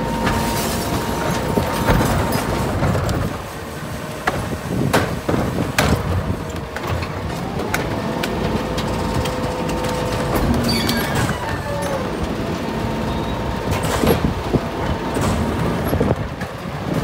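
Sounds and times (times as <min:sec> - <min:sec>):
carts banging against lifter: 0:00.0 - 0:03.5
garbage truck running: 0:00.0 - 0:17.0.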